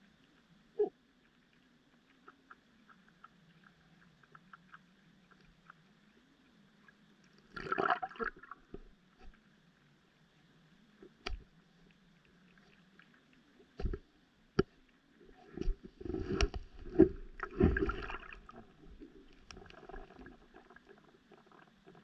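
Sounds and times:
underwater clicks and knocks: 0:11.0 - 0:11.5, 0:13.7 - 0:14.8, 0:15.5 - 0:20.0.

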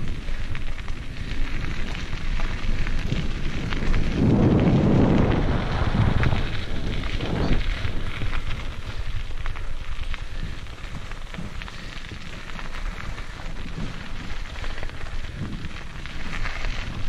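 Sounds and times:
bike rattling and clicking: 0:00.0 - 0:17.0
tyres crunching on gravel: 0:00.0 - 0:17.0
wind buffeting microphone: 0:00.0 - 0:17.0.

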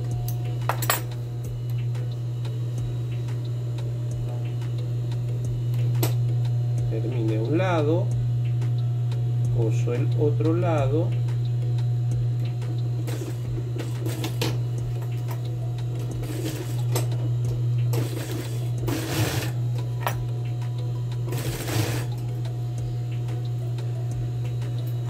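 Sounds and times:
steady low hum: 0:00.0 - 0:25.0
sewing machine stitching: 0:17.9 - 0:19.6, 0:21.3 - 0:22.2.

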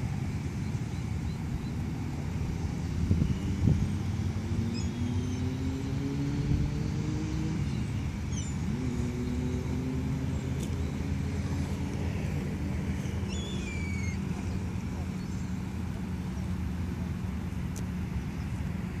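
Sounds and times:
low hum of motor traffic: 0:00.0 - 0:19.0
vehicles passing: 0:00.0 - 0:19.0
faint gull calls: 0:13.3 - 0:14.6.

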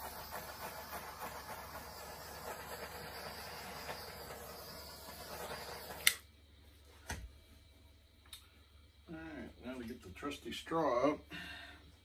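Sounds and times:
butane torch hissing: 0:00.0 - 0:06.4.

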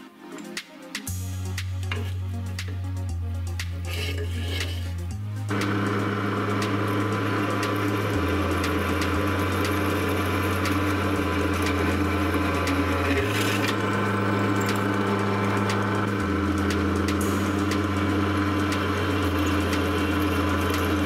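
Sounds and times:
drill press cutting steel: 0:05.5 - 0:21.0.

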